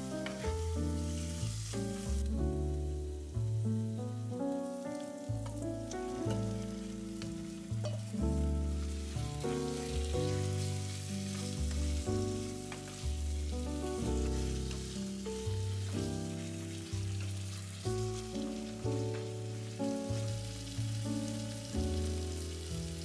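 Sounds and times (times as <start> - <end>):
background music: 0.0 - 23.0
pork sizzling in a pan: 0.0 - 23.0
wooden spatula stirring: 8.8 - 19.7.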